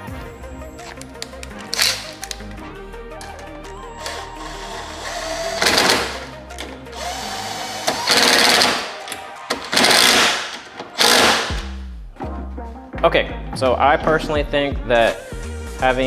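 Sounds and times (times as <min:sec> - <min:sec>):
background music: 0:00.0 - 0:16.0
cordless power tool rattling: 0:04.0 - 0:06.2, 0:07.0 - 0:08.9, 0:09.6 - 0:11.6.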